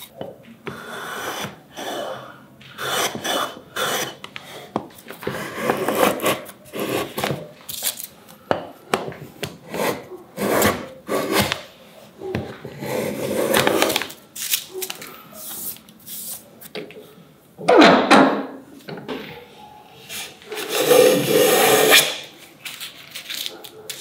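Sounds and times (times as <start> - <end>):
hand plane shaving wood: 0.7 - 7.4, 9.6 - 11.7.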